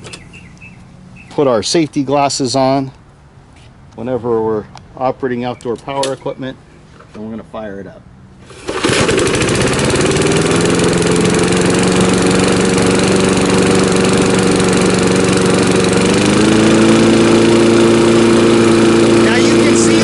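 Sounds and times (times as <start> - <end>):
mower engine running: 8.4 - 20.0.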